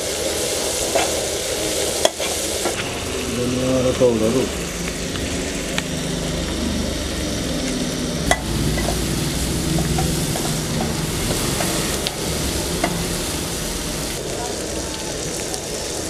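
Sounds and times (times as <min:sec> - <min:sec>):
food frying in oil: 0:00.0 - 0:16.0.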